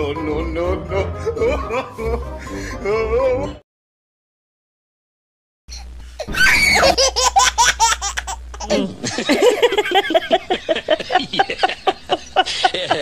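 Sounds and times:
high-pitched laughter: 6.3 - 13.0.

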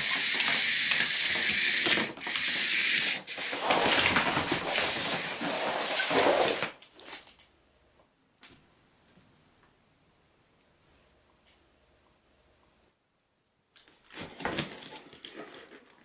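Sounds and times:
loud hissing scraping rustle: 3.3 - 6.8.

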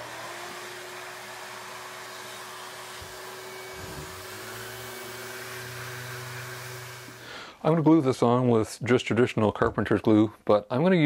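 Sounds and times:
orbital sander sanding wood: 0.0 - 7.3
dust extraction vacuum: 0.0 - 7.6.

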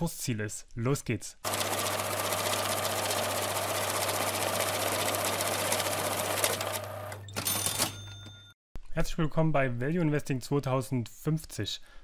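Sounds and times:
motor hum: 1.5 - 7.2
banknote counting machine flicking: 1.5 - 8.3.

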